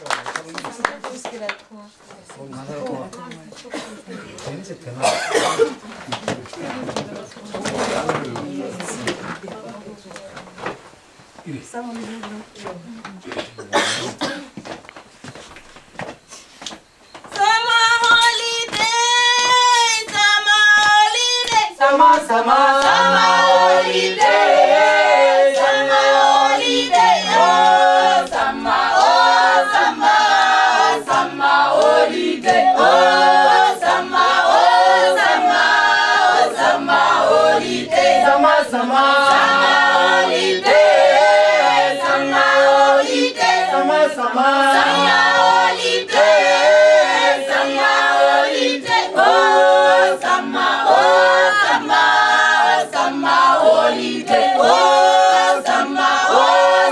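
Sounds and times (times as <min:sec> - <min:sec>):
group singing a cappella: 0:07.6 - 0:09.1, 0:17.4 - 0:56.9.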